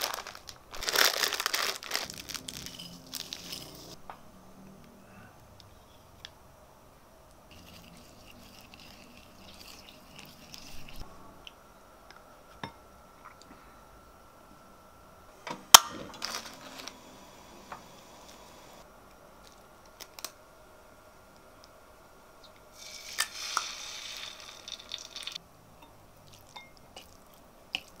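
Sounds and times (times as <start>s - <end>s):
sharp crack of packet opening: 0.0s - 2.7s
plastic packet crinkling: 0.0s - 4.0s
chopsticks stirring sauce in bowl: 7.5s - 11.0s.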